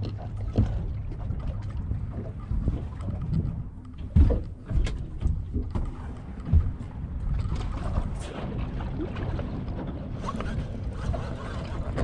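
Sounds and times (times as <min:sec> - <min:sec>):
waves slapping boat hull: 0:00.0 - 0:12.0
wind rumble on microphone: 0:00.0 - 0:12.0.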